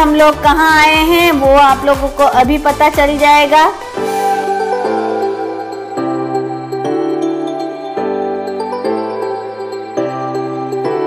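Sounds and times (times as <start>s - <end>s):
sustained chords: 3.9s - 9.7s.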